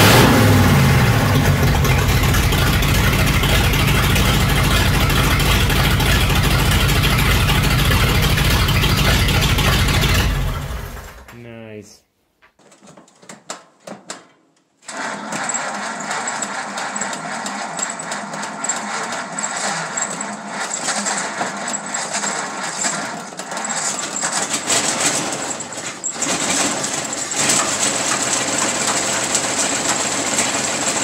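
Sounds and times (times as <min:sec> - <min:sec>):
car engine idling with ticking: 0:00.0 - 0:10.8.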